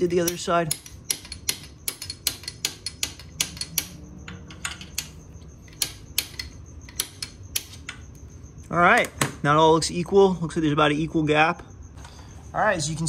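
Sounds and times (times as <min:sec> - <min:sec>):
wrenches tapping on steel bracket: 0:00.0 - 0:08.0.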